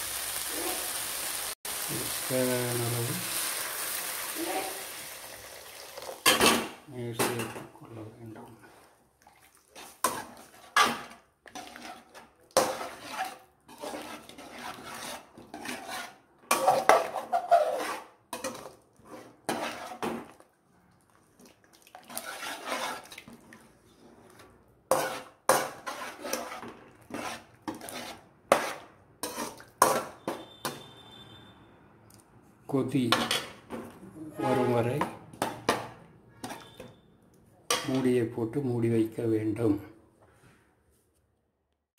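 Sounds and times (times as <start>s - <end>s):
metal spoon stirring in a pot: 8.3s - 20.5s, 21.1s - 30.9s, 34.4s - 37.0s.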